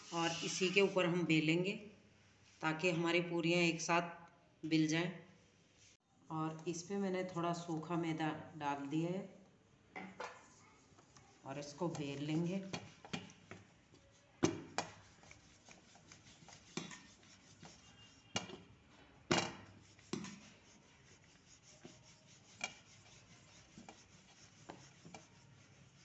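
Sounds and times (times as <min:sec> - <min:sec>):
rolling pin rubbing and scraping: 0:00.0 - 0:01.2, 0:10.5 - 0:18.7, 0:19.4 - 0:26.0.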